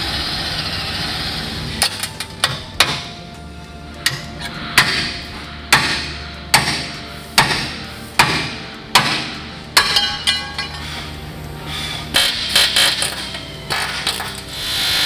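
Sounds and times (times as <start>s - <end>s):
hammer blows on steel: 4.0s - 11.1s.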